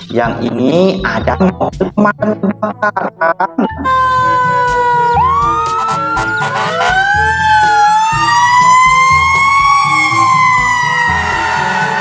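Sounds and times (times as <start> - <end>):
background music with beat: 0.0 - 12.0
fire engine siren wailing: 3.8 - 12.0.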